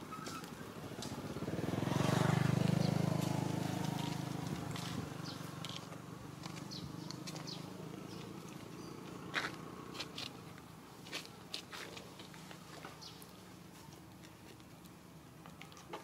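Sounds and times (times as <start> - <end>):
vehicle engine passing by: 0.4 - 10.6.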